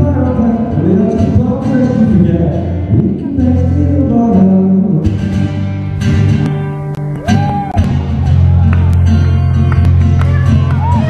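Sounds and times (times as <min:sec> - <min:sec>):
man singing: 0:00.0 - 0:05.4
acoustic guitar strumming chords: 0:00.0 - 0:11.0.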